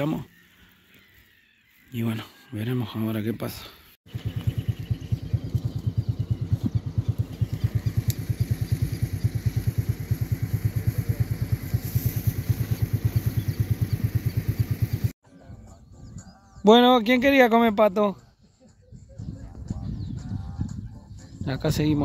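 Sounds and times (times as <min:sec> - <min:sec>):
small engine chugging: 0:04.1 - 0:15.1.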